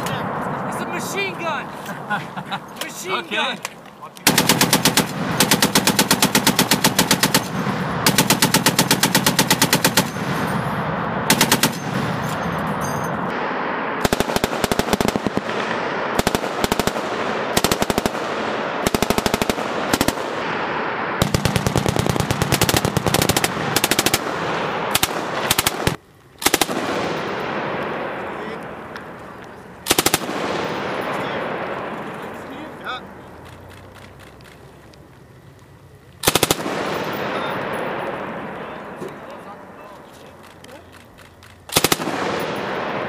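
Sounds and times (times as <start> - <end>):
heavy machine gun bursts: 4.2 - 13.2, 14.0 - 20.4, 21.2 - 27.6, 29.8 - 31.7, 36.2 - 38.2, 40.2 - 43.0.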